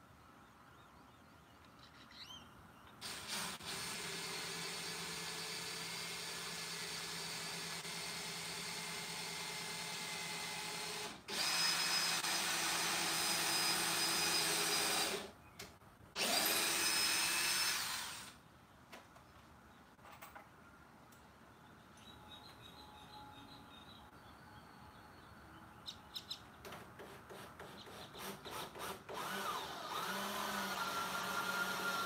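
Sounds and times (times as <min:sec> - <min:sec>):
cordless drill whining: 0:09.0 - 0:15.3, 0:16.2 - 0:18.4, 0:28.1 - 0:32.0.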